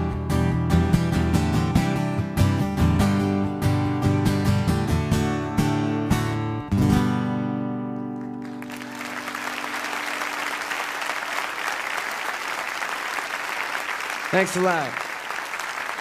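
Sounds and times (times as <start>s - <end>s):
acoustic guitar strumming: 0.0s - 10.6s
audience applauding: 8.2s - 16.0s.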